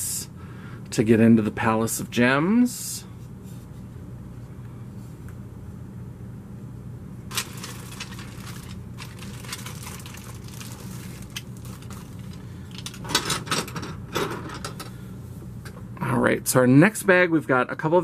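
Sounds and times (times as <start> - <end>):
low steady hum: 0.0 - 18.0
plastic bag crinkling: 7.3 - 13.0.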